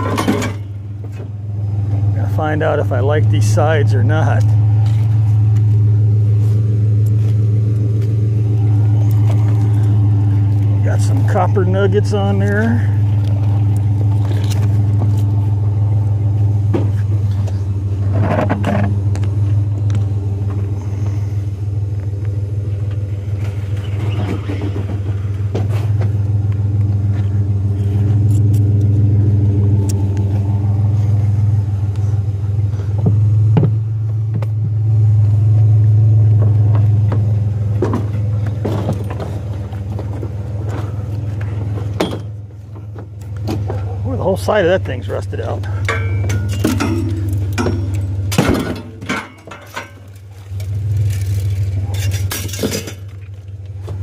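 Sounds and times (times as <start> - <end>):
knocks and scrapes of metal: 0.0 - 1.3, 16.7 - 19.0, 45.7 - 50.2, 51.0 - 53.3
vehicle engine idling: 0.0 - 54.0.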